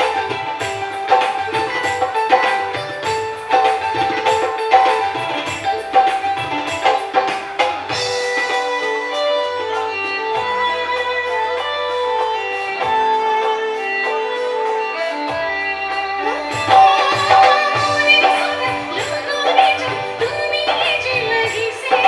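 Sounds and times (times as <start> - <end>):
live band playing instrumental: 0.0 - 22.0
drum hits: 16.4 - 22.0.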